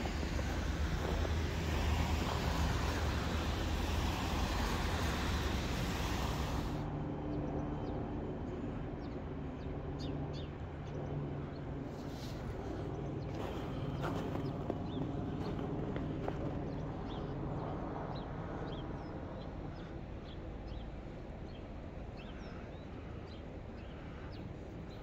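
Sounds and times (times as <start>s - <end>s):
traffic noise: 0.0s - 25.0s.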